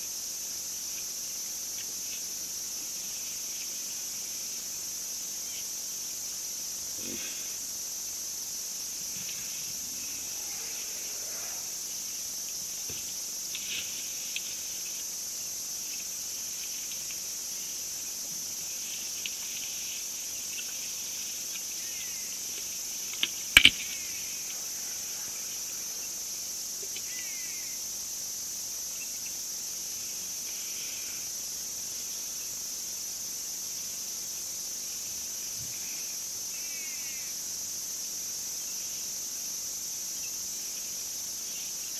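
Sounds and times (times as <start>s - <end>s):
insects chirring: 0.0s - 41.9s.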